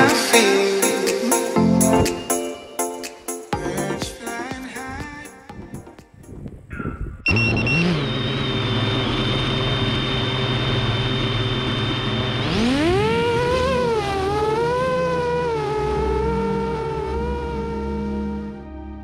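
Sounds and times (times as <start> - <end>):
quadcopter motors whirring: 7.4 - 17.0.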